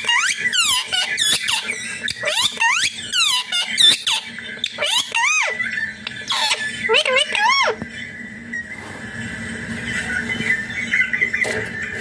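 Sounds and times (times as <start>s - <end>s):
parakeet squeaky calls: 0.0s - 7.8s.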